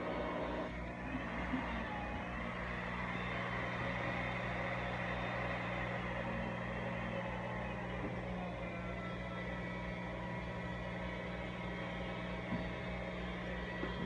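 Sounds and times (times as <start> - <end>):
electric water pump humming: 0.0 - 14.0.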